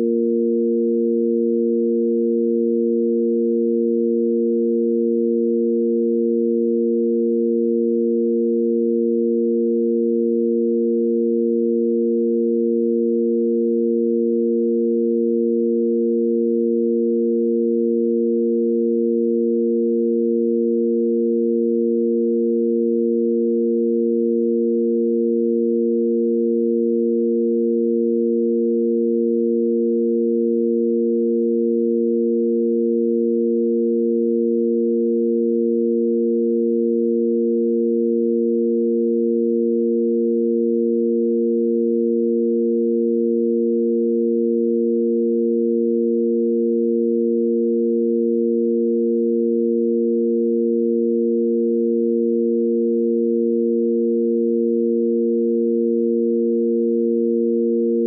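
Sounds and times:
electronic sine-wave drone: 0.0s - 58.0s.

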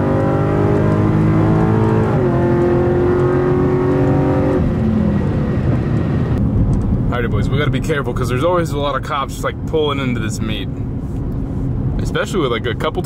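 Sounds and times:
car engine at high revs: 0.0s - 7.1s.

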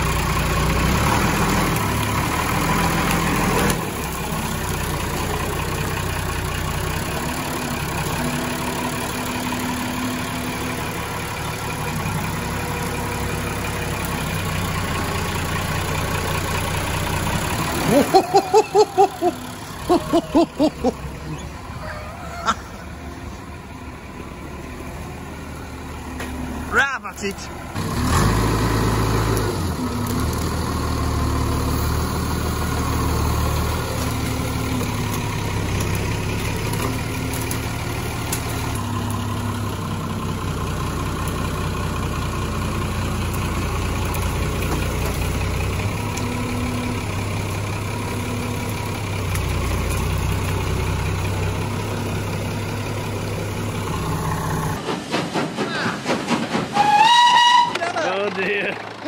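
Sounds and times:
tractor diesel engine running: 0.0s - 59.0s
steam train puffing: 54.8s - 57.7s.

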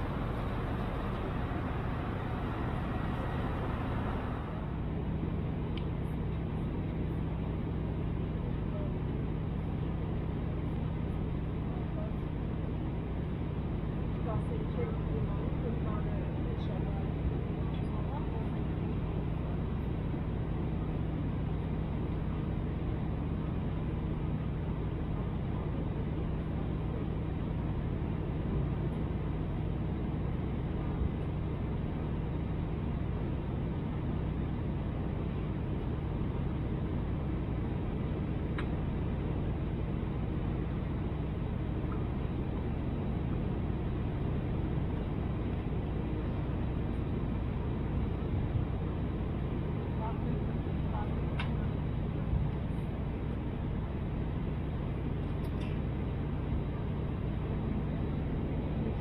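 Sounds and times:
rushing air: 0.0s - 5.3s
aircraft engines droning: 0.0s - 59.0s
low hum: 0.0s - 59.0s.

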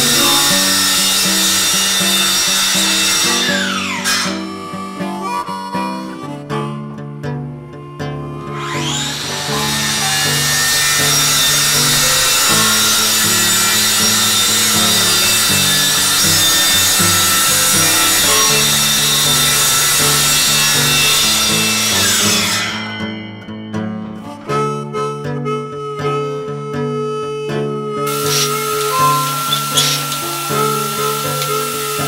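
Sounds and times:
saw blade winding down: 0.0s - 5.9s, 8.4s - 23.7s, 28.0s - 32.0s
circular saw cutting plywood: 0.0s - 6.6s, 8.3s - 23.8s, 28.0s - 32.0s.

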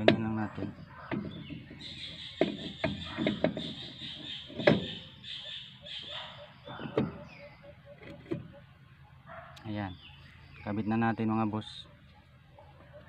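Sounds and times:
brake drum knocking and scraping: 0.0s - 5.3s, 6.7s - 7.3s, 8.0s - 8.6s.

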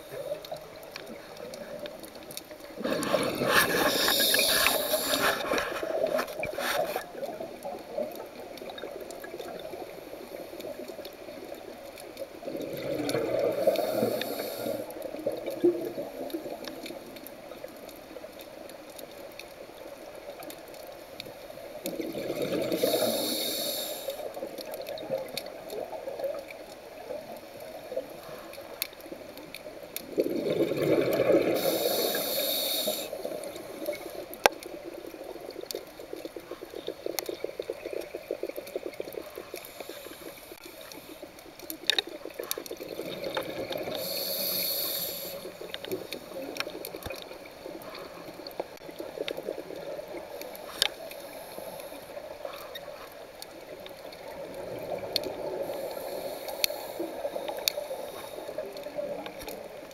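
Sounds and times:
underwater crackle and clicks: 0.0s - 59.9s
regulator air hiss: 3.4s - 6.0s, 13.6s - 14.9s, 22.8s - 24.3s, 31.6s - 34.1s, 43.8s - 46.4s, 55.6s - 58.6s
exhaust bubbles gushing: 30.1s - 31.6s.

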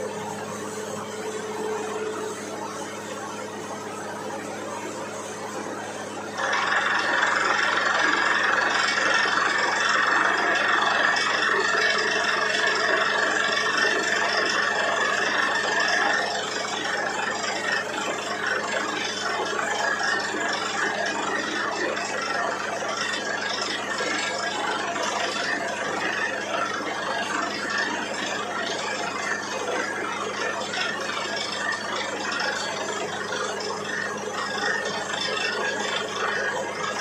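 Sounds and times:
high whine: 0.0s - 12.5s
drilling rig engine hum: 0.0s - 37.0s.

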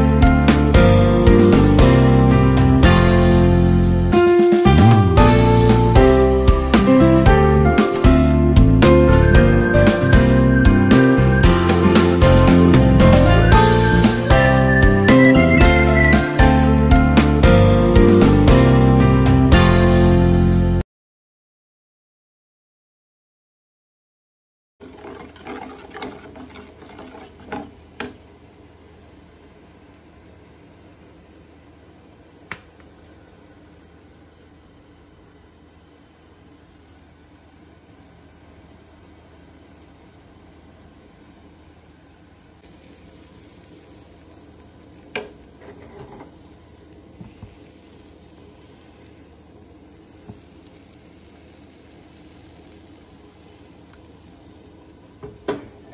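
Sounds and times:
pan rattling: 24.8s - 27.8s
faint steady hiss: 24.8s - 55.9s
spoon stirring batter: 24.9s - 27.7s.

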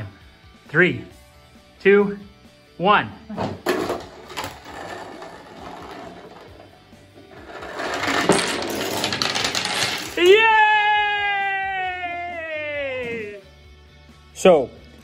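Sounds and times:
dominoes clattering: 3.7s - 10.4s
child cheering shout: 10.2s - 13.3s.

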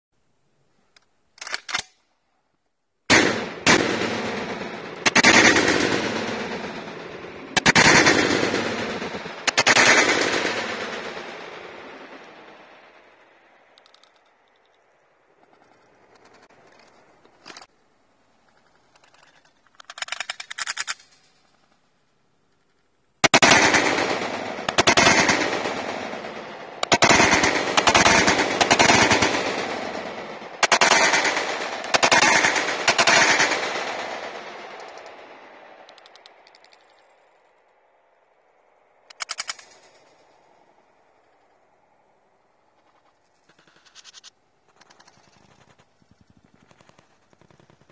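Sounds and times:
rifle gunshots: 3.1s - 12.7s, 23.2s - 35.5s
pistol shots: 23.2s - 35.4s.

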